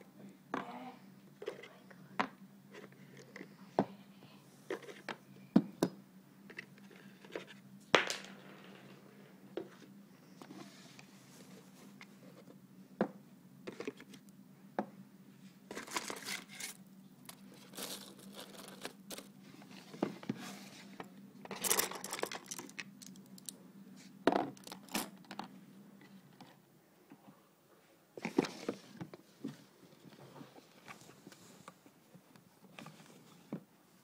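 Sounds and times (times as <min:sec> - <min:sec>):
packaging rustling and crinkling: 0:15.7 - 0:19.4.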